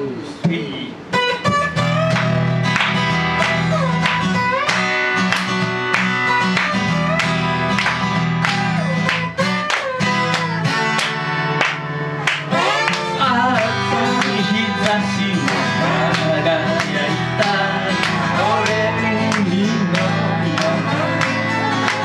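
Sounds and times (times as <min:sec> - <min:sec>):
acoustic guitar strumming: 0:00.4 - 0:22.0
slide guitar gliding notes: 0:01.0 - 0:22.0.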